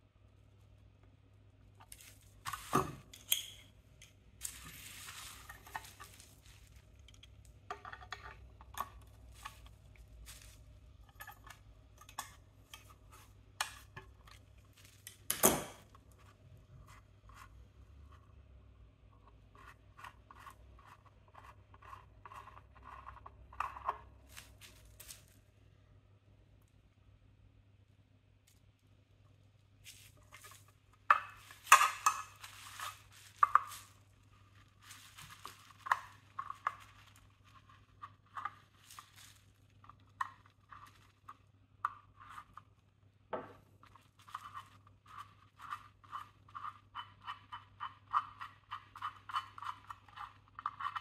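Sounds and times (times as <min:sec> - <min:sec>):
metal tool clicks and scrapes: 0:03.1 - 0:03.7.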